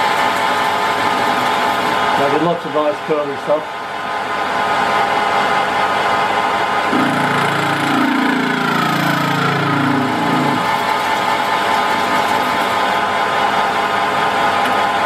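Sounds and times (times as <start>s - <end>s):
metal lathe cutting: 0.0s - 3.5s, 4.2s - 15.0s
buzzing tone falling in pitch: 6.9s - 10.8s.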